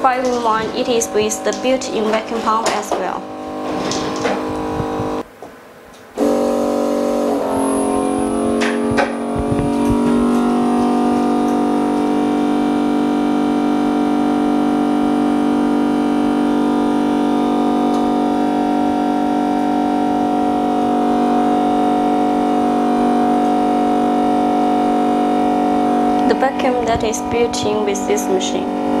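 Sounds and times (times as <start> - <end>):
vacuum pump humming: 0.0 - 5.4, 6.1 - 29.0.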